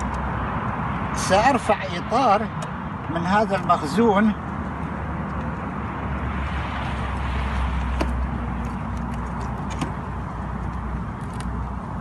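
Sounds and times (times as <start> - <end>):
sharp clicks and cracks: 10.6 - 11.6.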